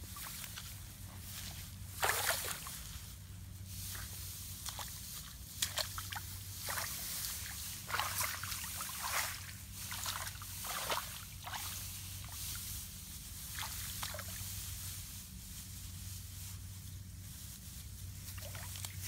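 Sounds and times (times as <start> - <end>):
shallow water splashing: 5.7 - 11.8.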